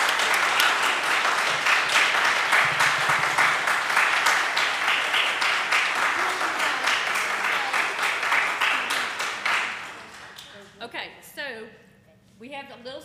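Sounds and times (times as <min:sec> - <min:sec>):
crowd applauding: 0:00.0 - 0:10.8.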